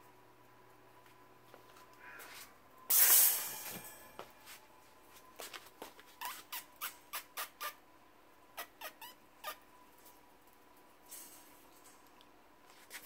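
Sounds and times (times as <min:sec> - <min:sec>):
puppies squeaking: 0:06.2 - 0:07.8, 0:08.6 - 0:09.6.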